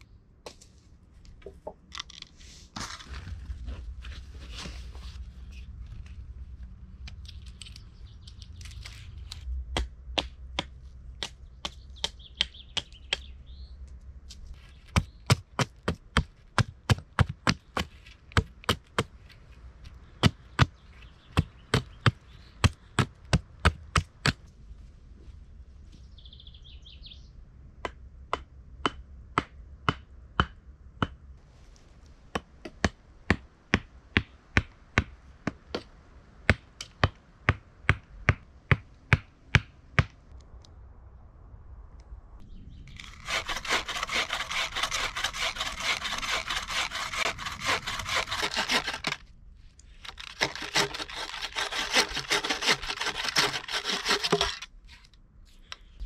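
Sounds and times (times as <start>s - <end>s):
hatchet chopping wood: 14.9s - 19.1s, 21.4s - 24.4s, 27.8s - 31.2s.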